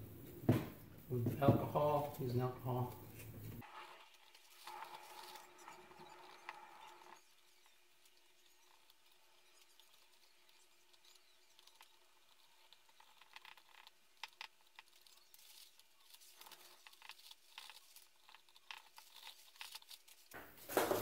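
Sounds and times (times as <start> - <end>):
cotton swab rubbing circuit board: 2.8 - 20.4
knocks and clatter of handling: 20.3 - 21.0.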